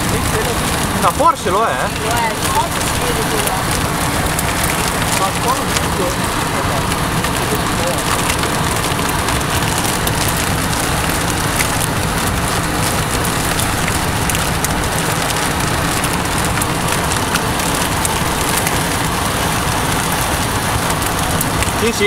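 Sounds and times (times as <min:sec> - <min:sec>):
rain on car roof: 0:00.0 - 0:22.0
vehicle rumble: 0:00.0 - 0:22.0.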